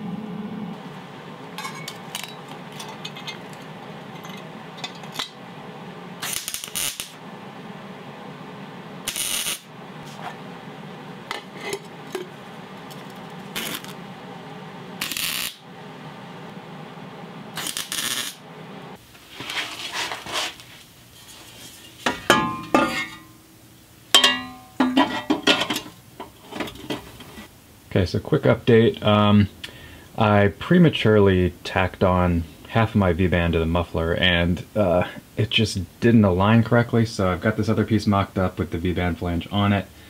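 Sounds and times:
welder crackling: 0:00.7 - 0:07.3, 0:09.0 - 0:10.4, 0:11.1 - 0:15.7, 0:17.5 - 0:23.5
metal pipes clanking: 0:01.6 - 0:05.4, 0:21.2 - 0:23.4, 0:24.1 - 0:27.5.

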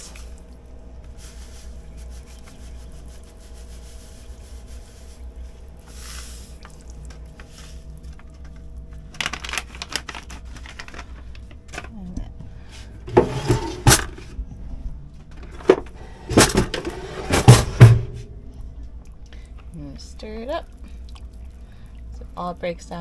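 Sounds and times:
steady low hum: 0:00.0 - 0:23.0
plastic pouch crinkling: 0:08.1 - 0:11.6.

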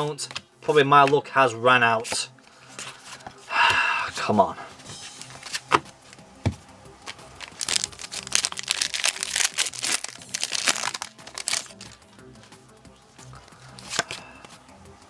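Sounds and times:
cards clicking and tapping: 0:00.2 - 0:01.2, 0:05.2 - 0:12.0, 0:13.7 - 0:14.6
foil wrapper crinkling and tearing: 0:07.0 - 0:12.0.

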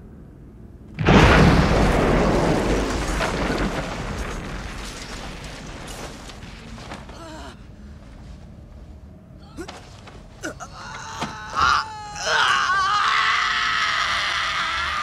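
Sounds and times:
loud explosion with low rumble: 0:01.0 - 0:06.7.

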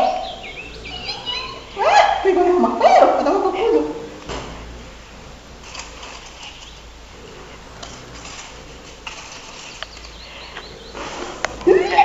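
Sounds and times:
rustling and handling noise: 0:04.2 - 0:11.9.

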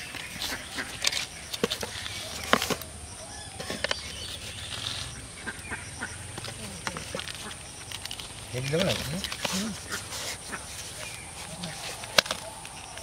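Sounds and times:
plastic jar and bag handled: 0:00.0 - 0:05.2, 0:06.3 - 0:13.0.

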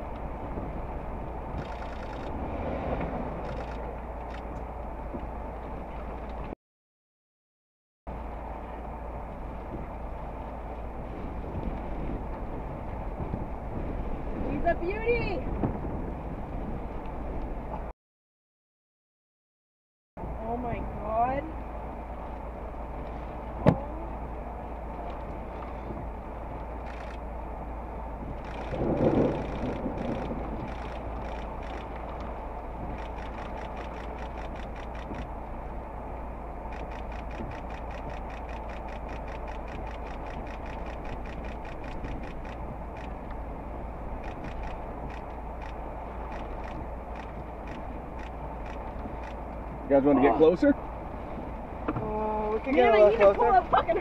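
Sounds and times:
vehicle cab hum: 0:08.1 - 0:17.9, 0:20.2 - 0:54.0
light quick ticking: 0:28.4 - 0:32.3, 0:32.9 - 0:35.4, 0:36.7 - 0:43.4, 0:44.2 - 0:49.6.

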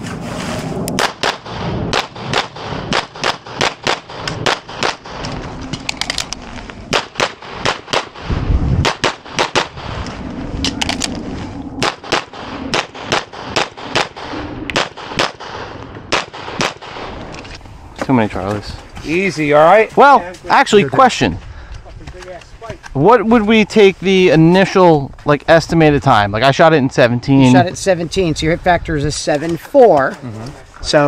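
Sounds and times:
pistol shots: 0:01.0 - 0:05.3, 0:06.9 - 0:09.9, 0:11.8 - 0:17.2.

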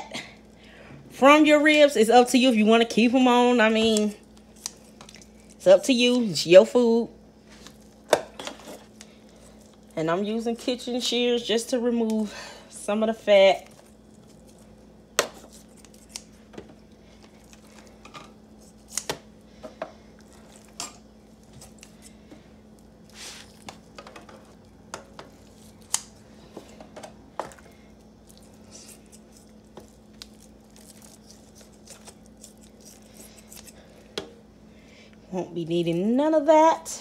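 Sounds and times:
kitchen shears snipping: 0:15.2 - 0:16.4, 0:18.6 - 0:19.2, 0:30.2 - 0:33.8.

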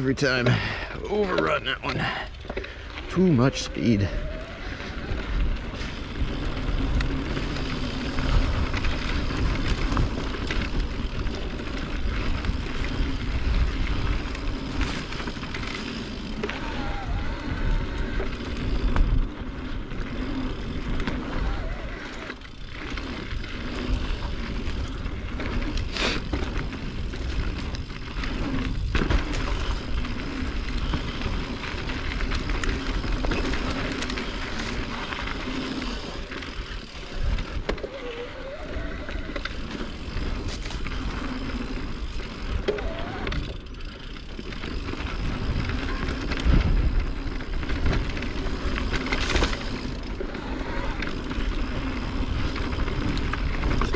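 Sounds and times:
tyres rolling over dirt: 0:00.0 - 0:53.9
bike rattling and knocking: 0:00.1 - 0:53.9
wind on microphone: 0:45.0 - 0:48.2.

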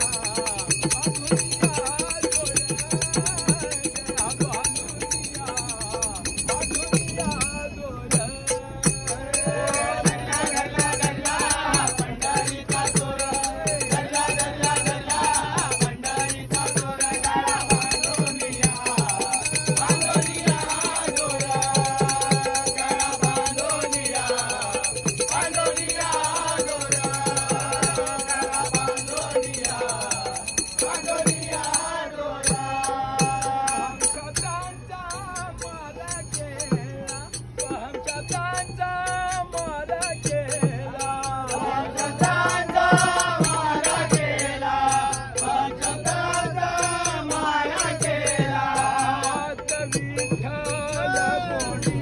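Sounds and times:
men singing together: 0:00.0 - 0:52.0
tabla: 0:00.0 - 0:52.0.

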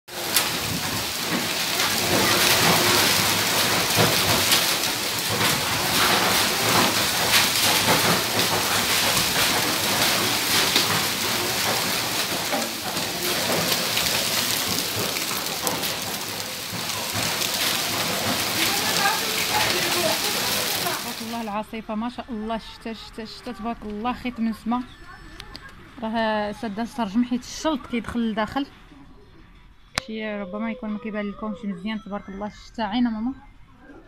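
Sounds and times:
heavy rain and hail: 0:00.1 - 0:21.5.

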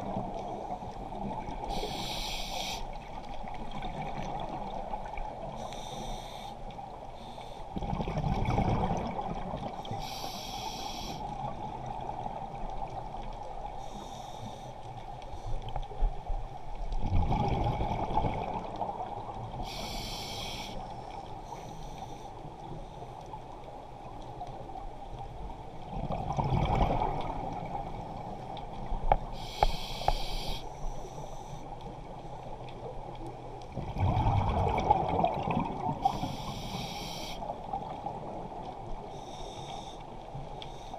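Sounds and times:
underwater hum: 0:00.0 - 0:40.9
regulator inhale hiss: 0:01.6 - 0:03.0, 0:05.6 - 0:07.7, 0:09.9 - 0:11.4, 0:13.8 - 0:15.7, 0:19.6 - 0:23.2, 0:29.3 - 0:31.7, 0:36.0 - 0:37.5, 0:39.1 - 0:40.9
exhaust bubbles underwater: 0:07.8 - 0:09.8, 0:17.0 - 0:19.2, 0:25.9 - 0:27.9, 0:33.8 - 0:36.0.

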